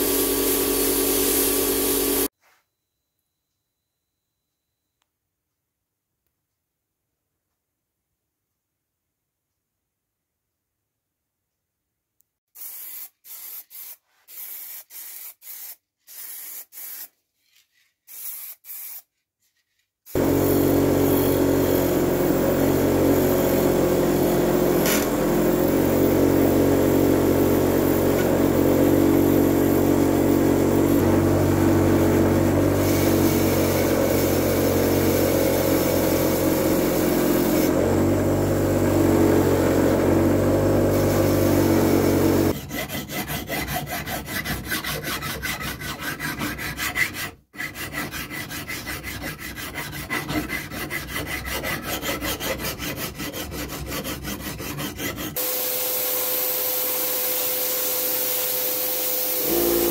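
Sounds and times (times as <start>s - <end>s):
bench grinder grinding metal: 0.0s - 2.3s, 20.2s - 59.9s
sandblasting gun hissing: 0.0s - 2.3s, 12.6s - 17.0s, 32.3s - 37.8s, 40.9s - 42.5s, 55.4s - 59.9s
hand file on metal: 42.4s - 55.6s.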